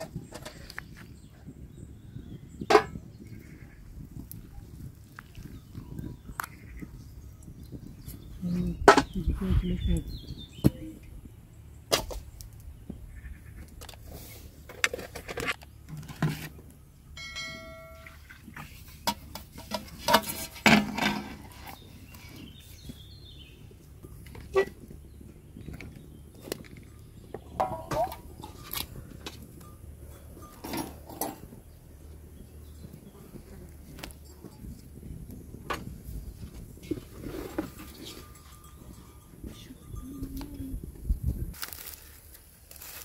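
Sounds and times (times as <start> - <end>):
metal pans clinking: 17.2 - 21.8, 27.4 - 28.9, 30.1 - 31.6.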